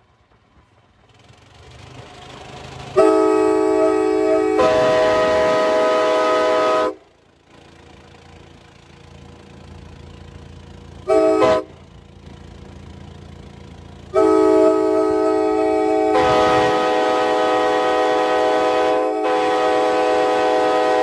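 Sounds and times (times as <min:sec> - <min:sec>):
vehicle road and wind noise: 0:00.0 - 0:21.0
air horn blasts: 0:02.9 - 0:07.0, 0:11.0 - 0:11.8, 0:14.1 - 0:21.0.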